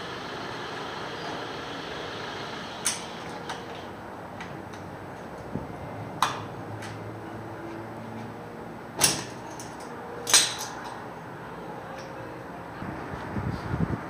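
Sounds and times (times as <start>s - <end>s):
metal tools clanking on metal: 9.0s - 11.0s.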